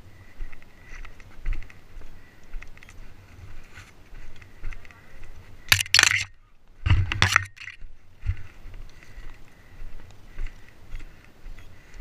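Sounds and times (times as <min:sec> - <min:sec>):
footsteps on stony ground: 0:00.0 - 0:12.0.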